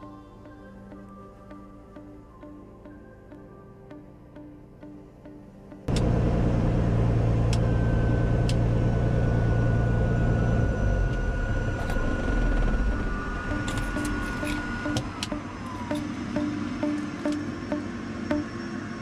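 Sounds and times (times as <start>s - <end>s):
high whine: 0.0s - 19.0s
vehicle low rumble: 5.9s - 19.0s.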